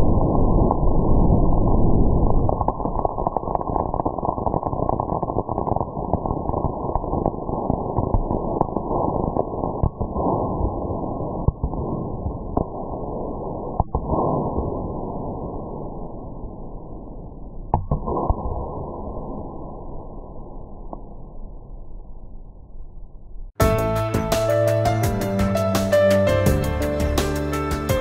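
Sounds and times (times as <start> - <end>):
firework crackling: 0.0 - 14.8
sharp firework pops: 2.3 - 10.8, 11.4 - 13.0, 13.6 - 14.7, 17.7 - 18.9.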